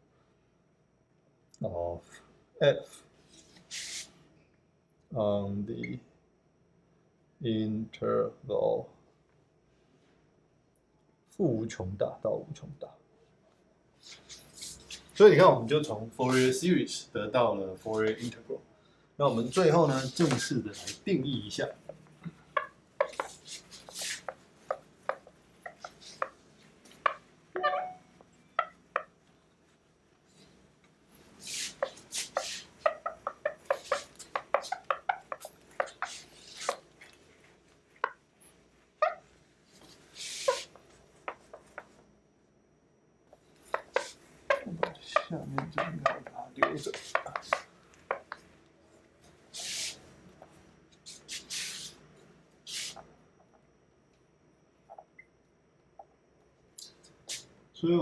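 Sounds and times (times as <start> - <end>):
hissing strokes on a whiteboard: 3.2 - 4.3, 14.0 - 15.4, 16.2 - 16.7, 19.3 - 21.8, 22.6 - 27.2, 30.2 - 37.7, 39.6 - 42.0, 43.6 - 48.5, 49.3 - 53.1, 57.2 - 57.5
eraser squeak: 3.7 - 4.1, 22.6 - 26.4, 27.0 - 29.1, 31.4 - 36.8, 40.2 - 40.8, 43.7 - 48.3
eraser rubbing on whiteboard: 23.0 - 26.4, 31.4 - 36.9, 39.8 - 40.8, 43.7 - 45.0, 46.0 - 48.3, 49.5 - 50.0.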